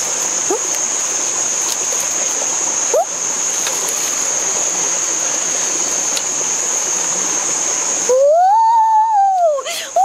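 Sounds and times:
thin high-pitched whine: 0.0s - 10.0s.

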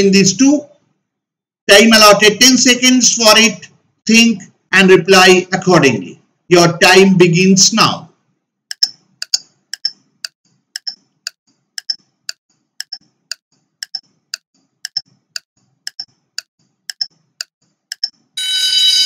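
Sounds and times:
clock ticking: 8.7s - 18.3s.

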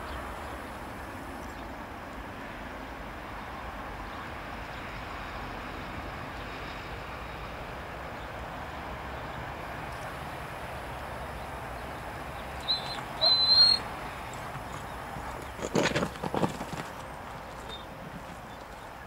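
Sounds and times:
distant helicopter in flight: 0.3s - 19.0s
high whistle-like call: 12.6s - 13.9s.

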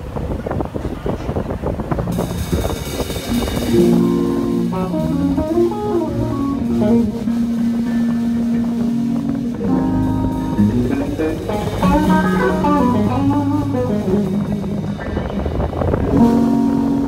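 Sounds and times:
bass guitar: 0.0s - 17.0s
drums: 0.0s - 17.0s
blues lead guitar: 1.4s - 17.0s.

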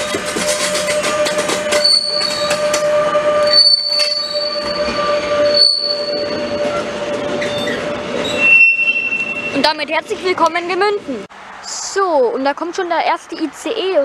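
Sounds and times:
high wheel squeal: 0.0s - 9.7s
train wagons rolling: 0.0s - 11.2s.

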